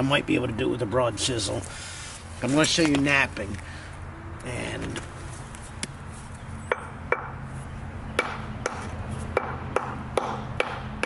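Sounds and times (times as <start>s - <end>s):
hammer striking stone: 6.7s - 7.3s, 8.2s - 10.8s.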